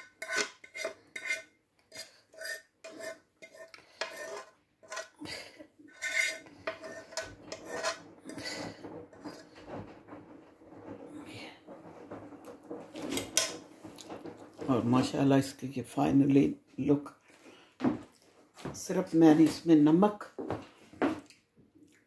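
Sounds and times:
utensil scraping frying pan: 0:00.0 - 0:15.4.

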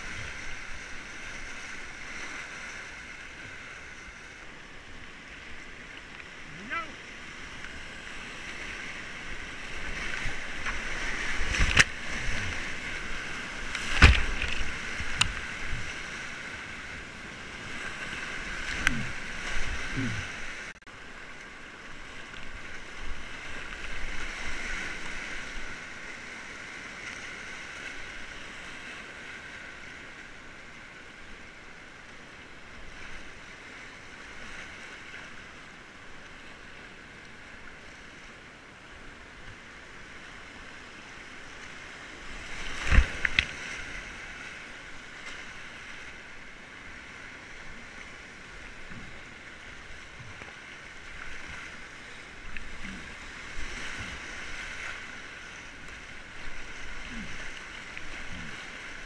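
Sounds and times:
whitewater rapids rushing: 0:00.0 - 0:26.8, 0:41.0 - 0:59.0.

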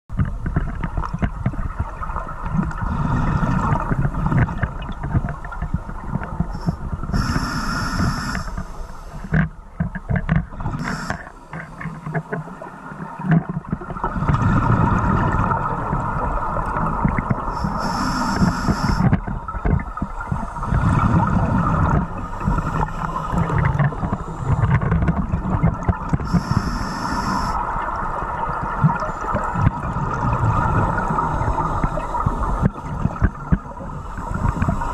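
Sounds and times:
gurgling exhaled bubbles: 0:00.4 - 0:08.6, 0:10.4 - 0:34.9
scuba regulator hissing: 0:06.6 - 0:09.2, 0:10.8 - 0:11.3, 0:17.6 - 0:19.1, 0:26.3 - 0:27.6.

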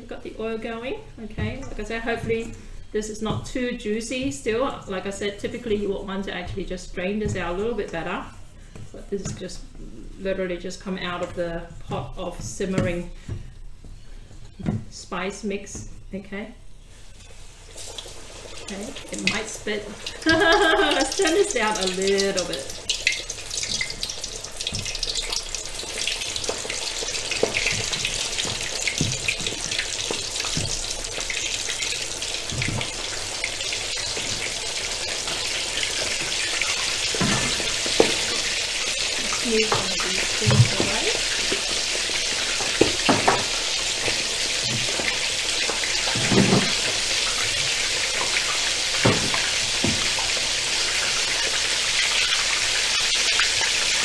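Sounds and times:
chicken deep-frying in oil: 0:16.8 - 0:54.0.

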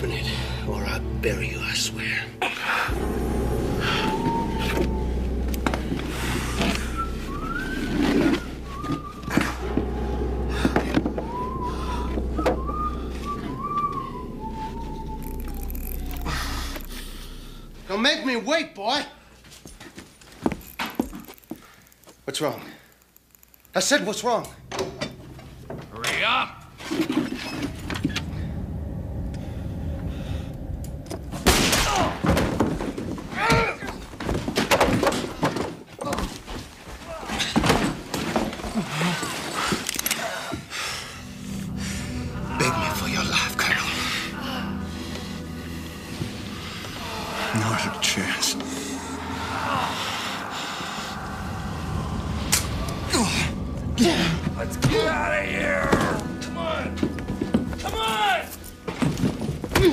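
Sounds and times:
low steady rumble: 0:00.0 - 0:18.7, 0:27.5 - 0:31.8, 0:41.1 - 0:55.1
person whistling a tune: 0:03.5 - 0:17.2.

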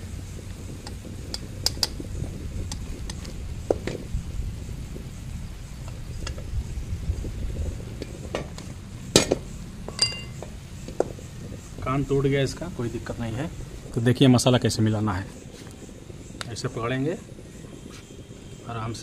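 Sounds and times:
low sizzle and rumble: 0:00.0 - 0:19.0
short metallic ring: 0:09.9 - 0:10.4.

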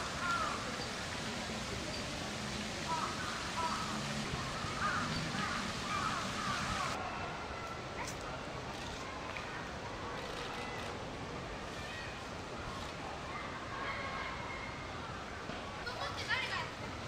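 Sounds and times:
steady hiss: 0:00.0 - 0:07.0.

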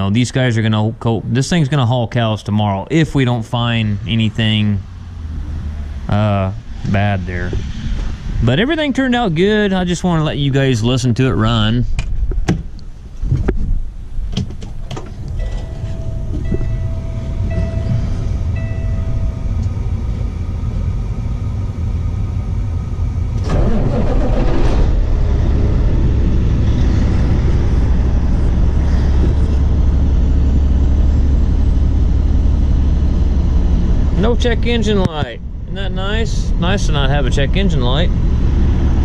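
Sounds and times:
diesel truck engine running: 0:00.0 - 0:11.7, 0:14.7 - 0:39.0
dashboard chime beeping: 0:15.4 - 0:19.6.

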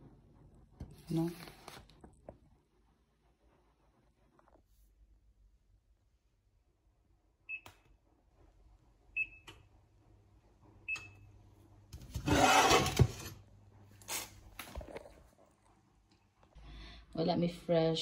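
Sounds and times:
pot scraping on glass hob: 0:12.0 - 0:13.4.

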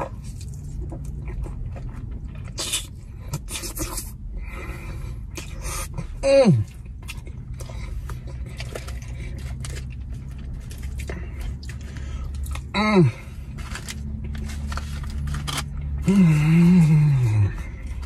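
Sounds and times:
low hum in car cabin: 0:00.0 - 0:18.0
chewing: 0:05.3 - 0:16.1
person humming mm of enjoyment: 0:16.0 - 0:17.6.

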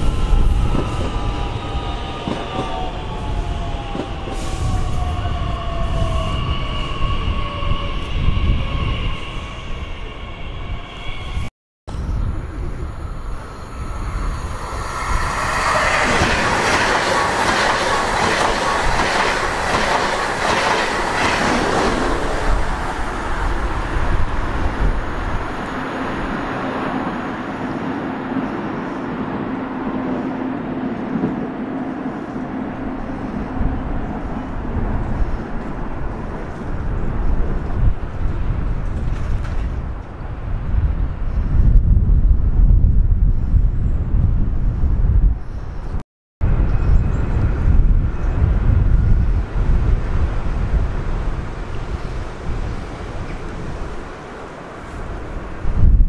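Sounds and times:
train running with low hum: 0:00.0 - 0:43.6
train wheels clacking on rails: 0:14.6 - 0:22.4.

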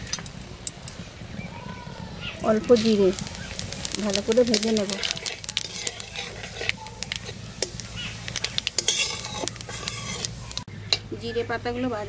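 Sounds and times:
spices sizzling and crackling in oil: 0:00.0 - 0:10.7
metal spatula scraping a pan: 0:02.8 - 0:11.0.

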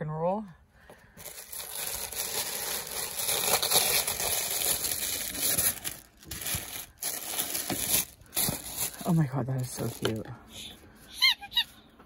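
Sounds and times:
tissue paper rustling: 0:01.2 - 0:10.3.

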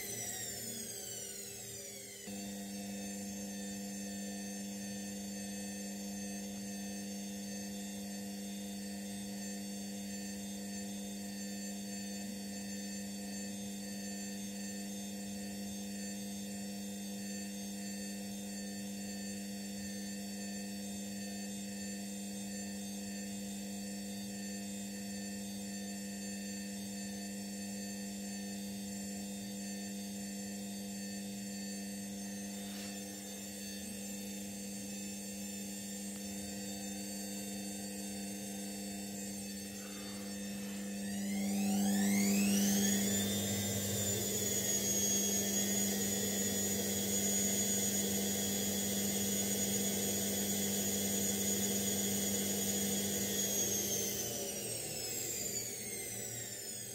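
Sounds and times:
washing machine humming: 0:38.6 - 0:56.9.

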